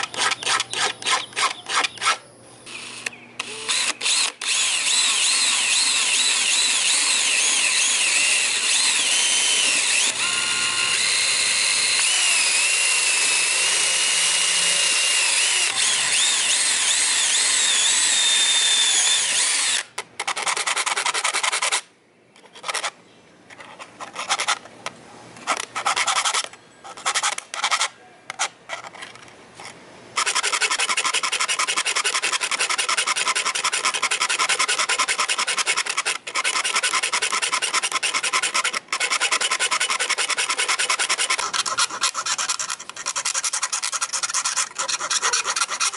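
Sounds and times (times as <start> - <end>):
drill bit squealing through brass: 0.0 - 19.8
file rasping on metal: 25.5 - 27.9, 30.2 - 45.9.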